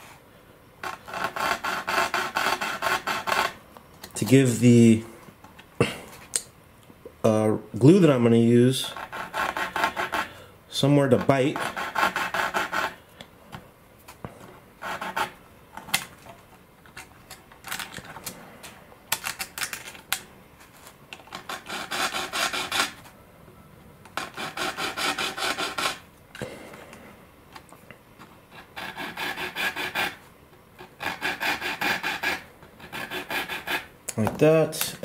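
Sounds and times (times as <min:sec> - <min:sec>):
hand file rasping: 0:00.8 - 0:03.6, 0:08.9 - 0:10.3, 0:11.3 - 0:13.0, 0:14.8 - 0:15.4, 0:21.3 - 0:23.0, 0:24.2 - 0:26.0, 0:28.5 - 0:30.2, 0:30.8 - 0:33.9.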